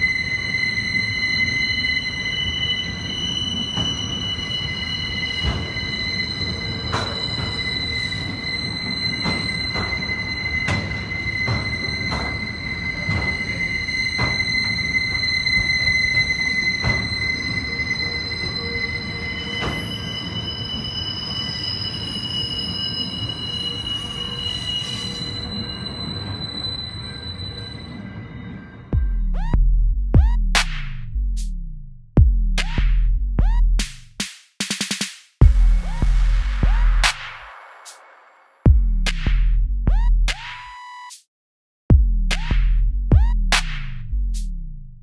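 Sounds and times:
rumble of wheels on rails: 0.0s - 29.6s
train wheel squeal: 0.0s - 31.1s, 35.6s - 39.6s.

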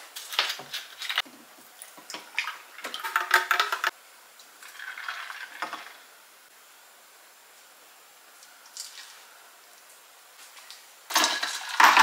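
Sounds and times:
milk pouring over ice: 4.6s - 6.0s.

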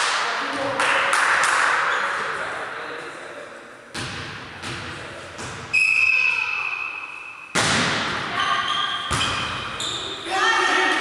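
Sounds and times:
hand hitting volleyball: 7.5s - 8.3s.

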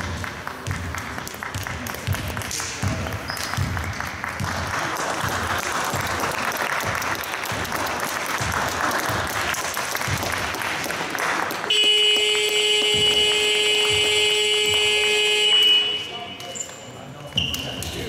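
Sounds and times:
spectators applauding: 0.0s - 15.0s
scoreboard buzzer: 11.7s - 16.4s.

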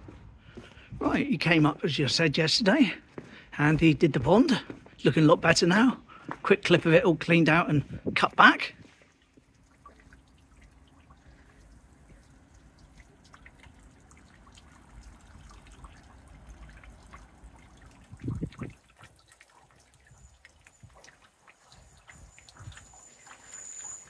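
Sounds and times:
water trickling into a pond: 8.8s - 24.0s.

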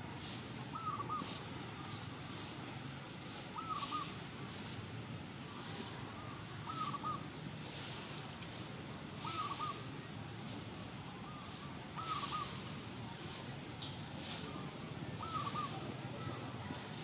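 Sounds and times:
bird calling: 0.7s - 2.1s, 3.6s - 4.1s, 6.7s - 7.2s, 9.2s - 9.9s, 11.2s - 12.7s, 15.2s - 16.5s.

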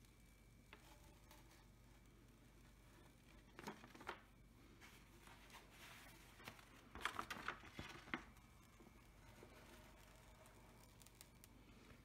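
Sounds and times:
paper rustling and crackling: 3.0s - 12.0s.

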